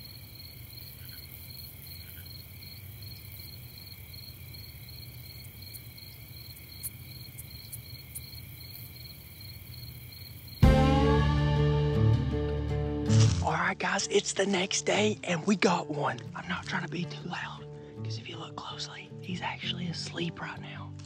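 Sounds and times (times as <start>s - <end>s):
insects trilling: 0.0s - 10.7s.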